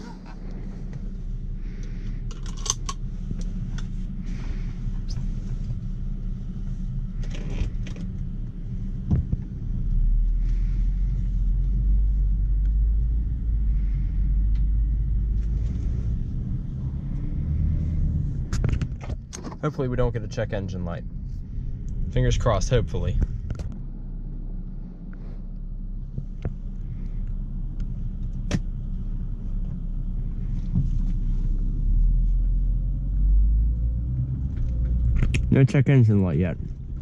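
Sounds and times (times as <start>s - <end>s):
car engine and road rumble: 0.0s - 37.0s
light clicks of controls: 1.8s - 3.9s, 11.5s - 13.2s, 14.1s - 16.2s, 25.5s - 29.9s.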